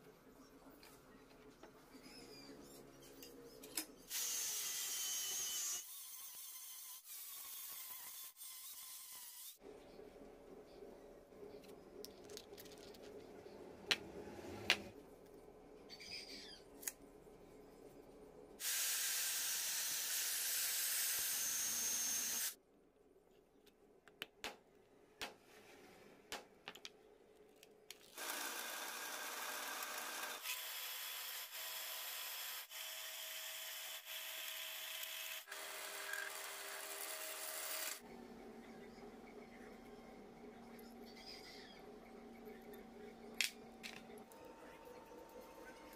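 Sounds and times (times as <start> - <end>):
power tool running: 28.2 - 38.0.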